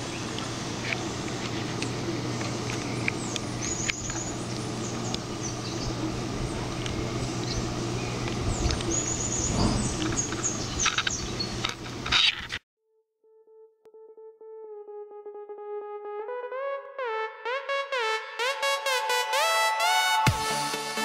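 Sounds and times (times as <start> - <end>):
aquarium filter hum: 0.0 - 12.0.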